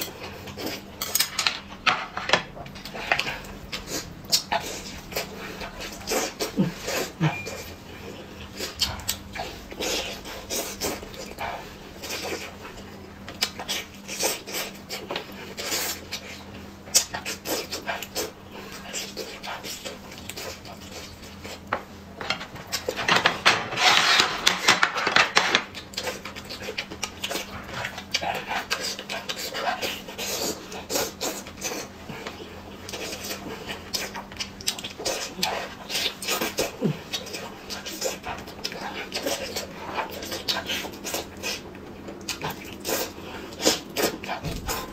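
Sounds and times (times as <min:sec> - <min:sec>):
chewing and lip smacks: 0:08.4 - 0:21.6, 0:25.8 - 0:44.9.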